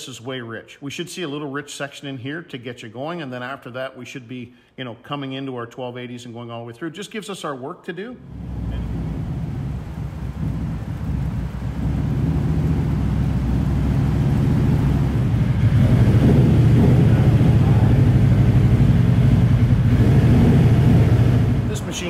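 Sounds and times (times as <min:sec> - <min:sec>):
engine rumbling on a dyno: 0:08.2 - 0:22.0.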